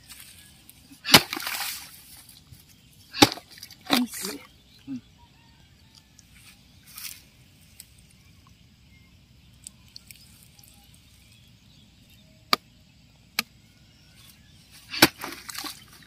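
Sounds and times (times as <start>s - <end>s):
digging bar knocking mud: 1.0s - 2.0s, 3.1s - 4.2s, 14.9s - 16.0s.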